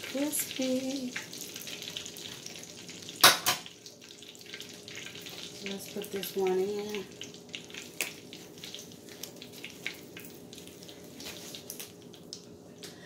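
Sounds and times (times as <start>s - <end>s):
oil sizzling in a skillet: 0.0s - 12.6s
crackling pops: 7.6s - 8.2s.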